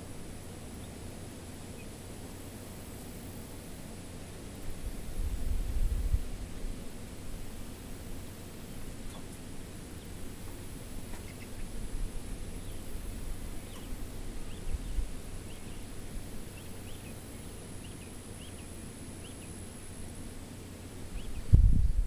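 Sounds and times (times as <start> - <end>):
chicks peeping: 0.5 - 2.5, 7.6 - 20.2, 20.9 - 21.7.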